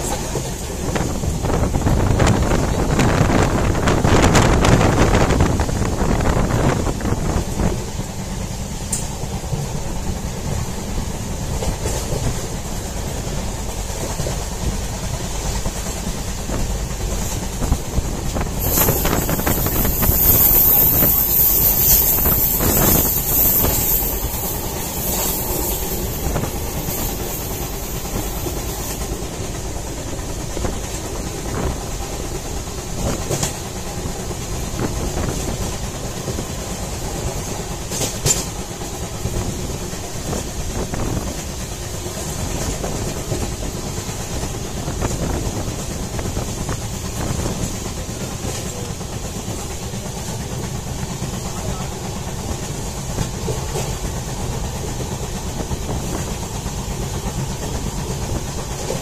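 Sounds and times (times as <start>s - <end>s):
train wheels rumbling on rails: 0.0s - 59.0s
rushing air: 0.6s - 48.4s.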